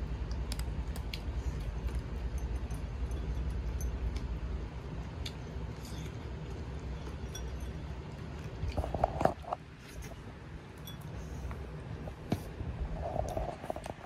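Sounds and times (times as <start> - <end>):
cat crunching dry kibble: 0.0 - 3.0, 8.0 - 10.1.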